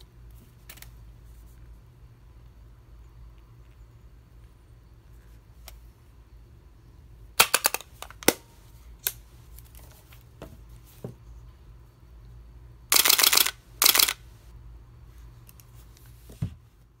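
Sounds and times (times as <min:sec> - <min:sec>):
camera shutter single clicks: 0:12.9 - 0:14.2.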